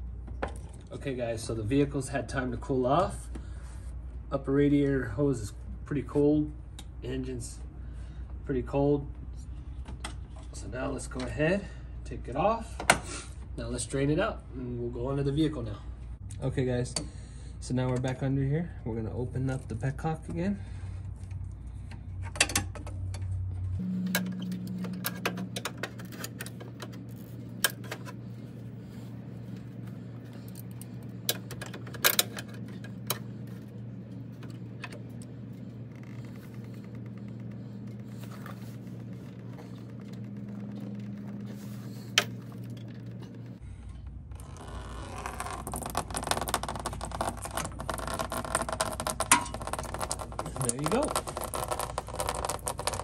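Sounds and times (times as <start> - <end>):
steady low hum: 0.0 - 53.0
coolant pouring and splashing: 45.2 - 53.0.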